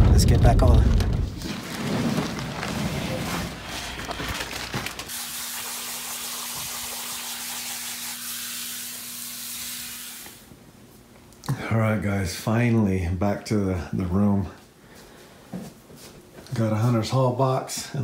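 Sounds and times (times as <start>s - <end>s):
steady hiss: 5.1s - 10.5s.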